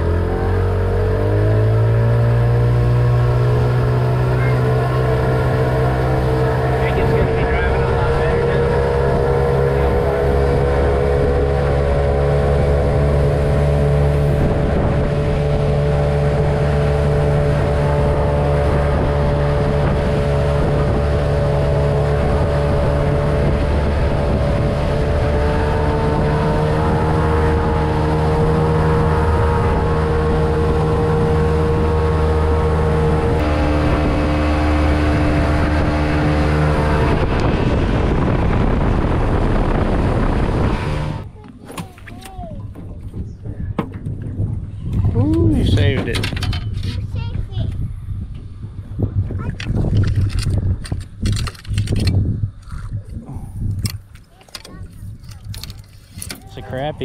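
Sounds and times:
rushing water from wake: 0:00.0 - 0:41.3
boat motor running: 0:00.0 - 0:57.0
wind on microphone: 0:00.0 - 0:57.0.

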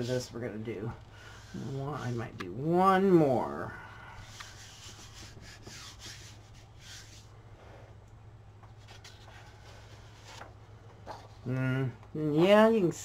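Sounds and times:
hands rubbing paper: 0:04.2 - 0:07.4, 0:08.7 - 0:10.5.

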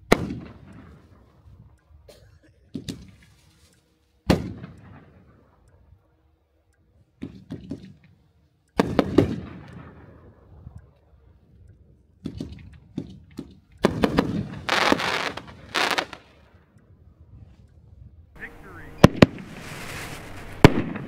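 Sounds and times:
firework shell bursts: 0:13.8 - 0:16.4, 0:18.9 - 0:21.0
firework launch reports: 0:13.9 - 0:16.3, 0:18.4 - 0:21.0.

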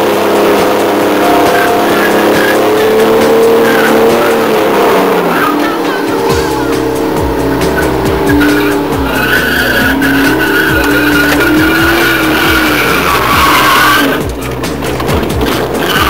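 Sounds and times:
car engine revving: 0:00.0 - 0:16.0
tyres squealing: 0:00.2 - 0:16.0.

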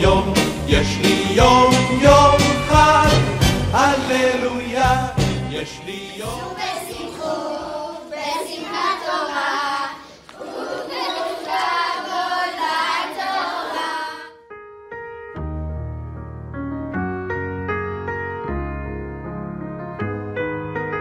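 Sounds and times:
piano music: 0:00.0 - 0:07.3, 0:14.4 - 0:21.0
children singing: 0:05.6 - 0:14.4.

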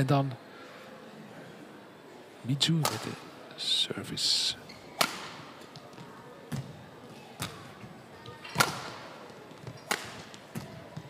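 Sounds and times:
rackets striking shuttlecock: 0:05.0 - 0:05.8, 0:08.5 - 0:10.8.

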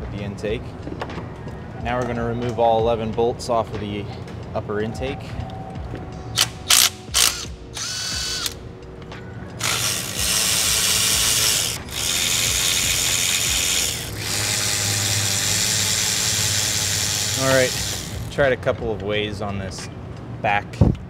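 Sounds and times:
power ratchet spinning: 0:06.4 - 0:08.6, 0:09.6 - 0:18.4.

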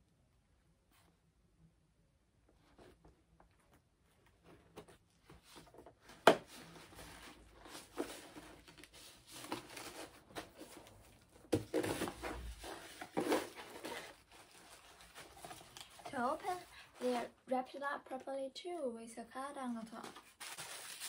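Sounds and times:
cardboard tearing and rustling: 0:06.4 - 0:17.3, 0:20.1 - 0:21.0.

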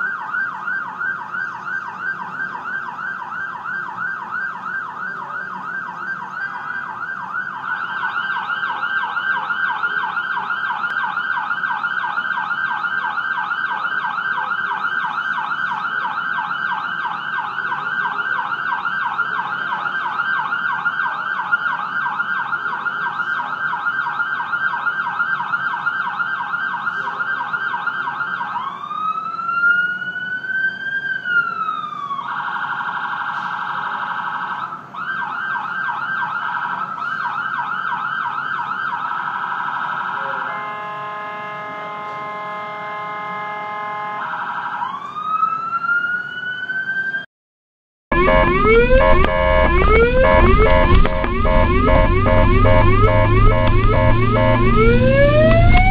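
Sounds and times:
ambulance siren: 0:00.0 - 0:47.3, 0:48.1 - 0:55.9.

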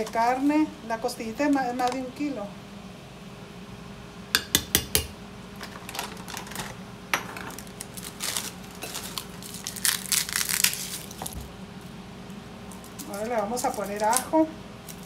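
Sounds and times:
plastic bag crinkling: 0:05.6 - 0:06.8, 0:07.5 - 0:11.4.

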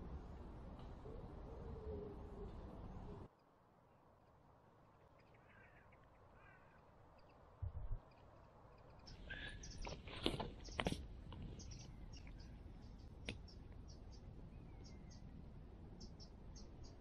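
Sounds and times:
faint crows cawing: 0:05.0 - 0:07.5, 0:08.8 - 0:10.0
rustling: 0:08.1 - 0:12.4.

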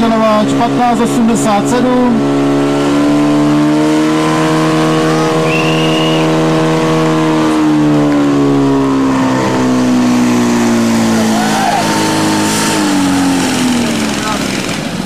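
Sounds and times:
pump engine running flat out: 0:07.9 - 0:15.0.

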